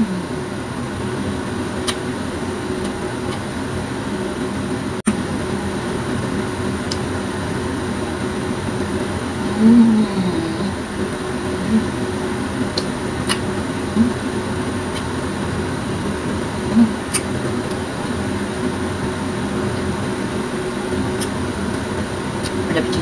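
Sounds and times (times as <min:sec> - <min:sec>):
closed-mouth hums: 0:00.0 - 0:00.7, 0:09.2 - 0:15.5, 0:16.4 - 0:18.2, 0:22.4 - 0:23.0
fan humming: 0:00.0 - 0:23.0.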